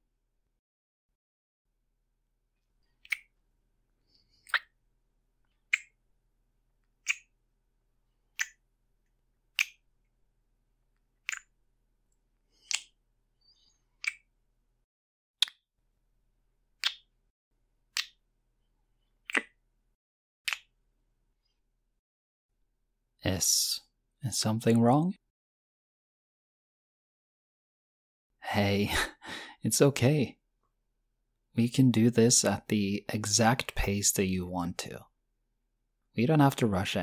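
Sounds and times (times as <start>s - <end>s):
lip smacking kisses: 12.6s - 13.0s.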